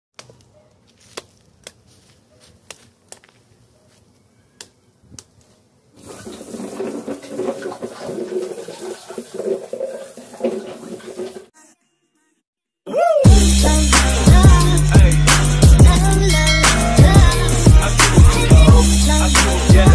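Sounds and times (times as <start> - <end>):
sharp snaps: 2.6 - 3.4, 4.6 - 5.5
hose spraying water: 6.0 - 11.5
water splashing: 6.0 - 11.5.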